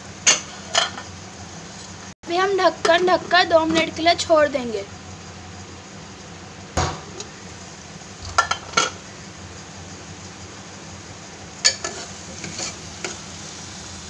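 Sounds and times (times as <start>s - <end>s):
spoon scraping and stirring pot: 11.6s - 13.2s.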